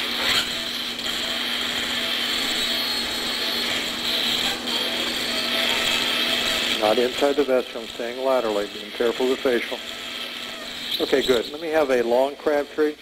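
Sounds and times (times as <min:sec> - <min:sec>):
drill burr grinding bone: 0:00.0 - 0:12.3
surgical drill whining: 0:00.0 - 0:13.0.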